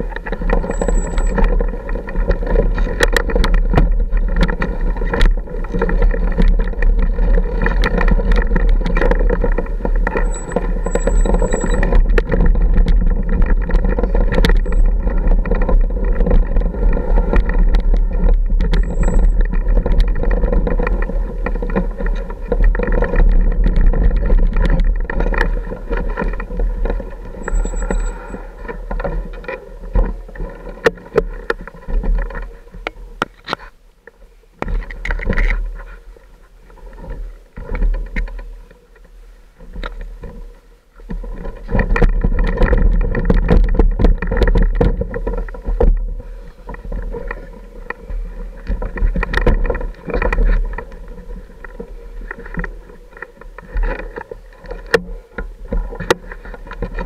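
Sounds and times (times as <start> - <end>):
motorcycle engine at low revs: 0.0 - 33.4
stones and suspension clattering: 0.0 - 33.7.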